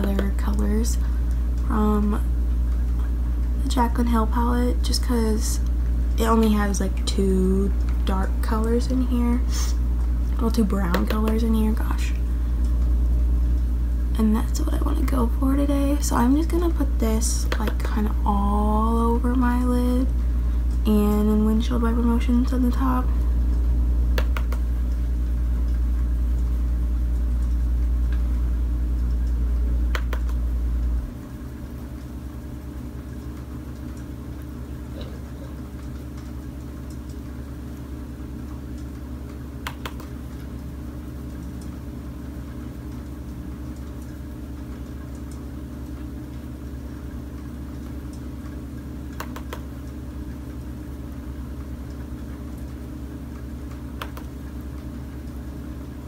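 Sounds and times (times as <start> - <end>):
steady low hum: 0.0 - 56.0
faint light clicks: 54.0 - 54.3.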